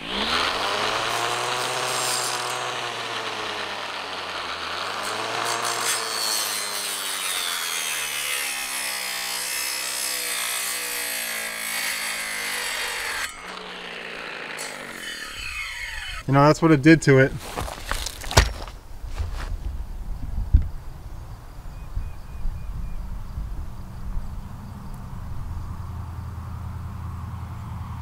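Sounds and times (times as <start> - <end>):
saw blade cutting wood: 0.0 - 16.3
trimmer motor whining: 0.0 - 16.3.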